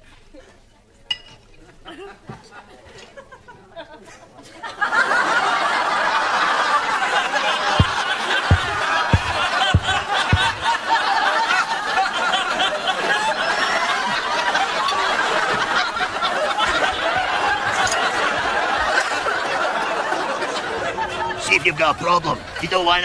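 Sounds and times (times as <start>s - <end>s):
crowd laughing: 1.8s - 23.0s
low thuds: 7.8s - 10.8s.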